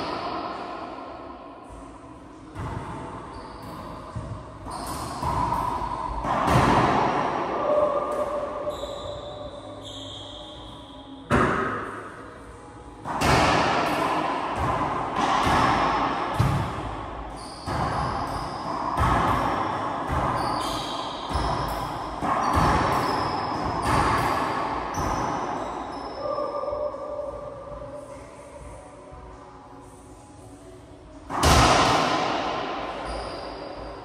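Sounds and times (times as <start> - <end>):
racquetball strikes echoing: 2.5 - 12.4, 13.0 - 27.6, 31.3 - 34.0.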